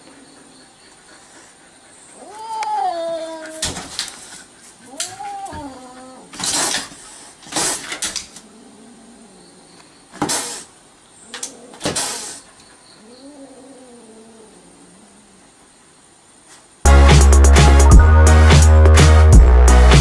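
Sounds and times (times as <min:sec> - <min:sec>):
cat hissing: 0:02.1 - 0:09.3, 0:10.2 - 0:15.4
low wavering cat growl: 0:04.9 - 0:06.4, 0:08.3 - 0:09.6, 0:13.0 - 0:15.4.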